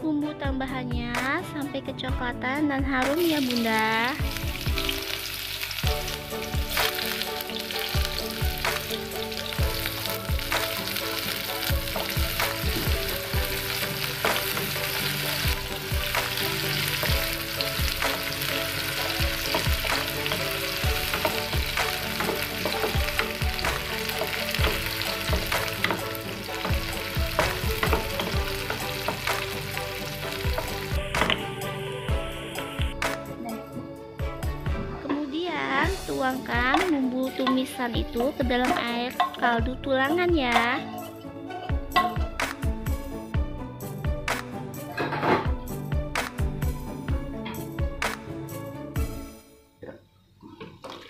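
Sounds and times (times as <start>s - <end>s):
food sizzling in hot oil: 3.1s - 33.0s
wooden spatula knocking against pan: 26.6s - 29.4s.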